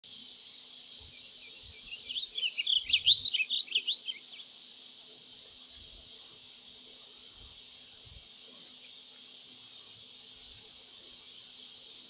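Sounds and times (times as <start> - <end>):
bird warbling song: 1.1 - 4.5.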